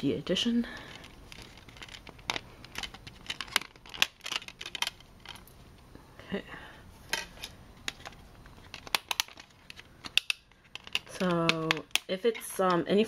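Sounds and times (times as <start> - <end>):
plastic cd case clicks: 7.2 - 12.1.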